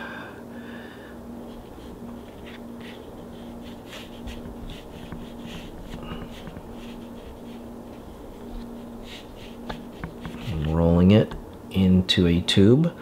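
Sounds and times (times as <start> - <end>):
hands rolling clay on cardboard: 1.4 - 11.4.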